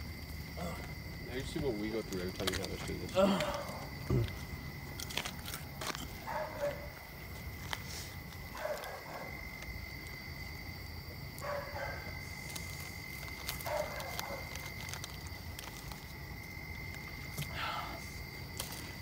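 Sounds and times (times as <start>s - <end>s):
person gulping: 3.3s - 4.4s.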